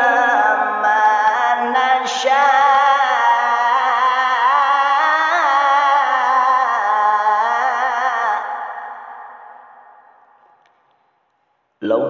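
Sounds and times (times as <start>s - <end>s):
echo: 0.0s - 12.0s.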